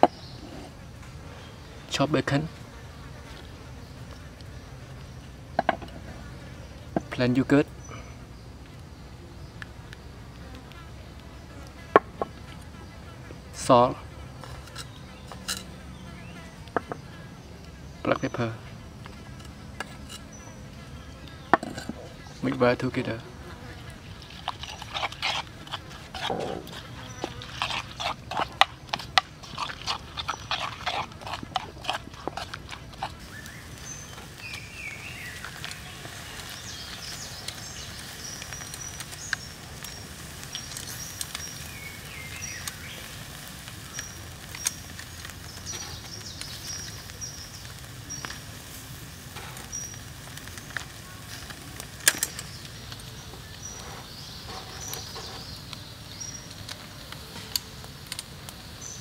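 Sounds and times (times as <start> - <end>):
spoon scraping a bowl: 14.4 - 15.7, 24.2 - 33.3.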